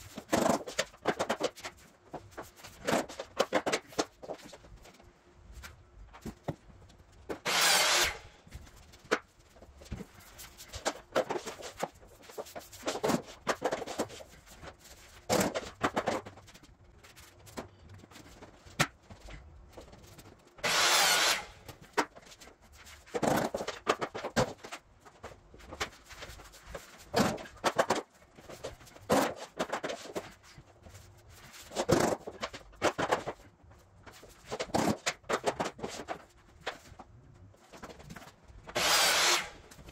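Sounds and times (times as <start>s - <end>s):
loud scraping: 7.4s - 8.3s, 20.6s - 21.6s, 38.8s - 39.6s.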